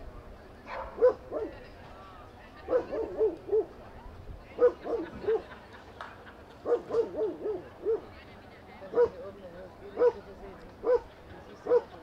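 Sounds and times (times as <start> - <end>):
dog barking: 0.7 - 1.6, 2.7 - 3.7, 4.6 - 5.4, 6.6 - 8.1, 8.9 - 9.2, 10.0 - 10.2, 10.8 - 12.0.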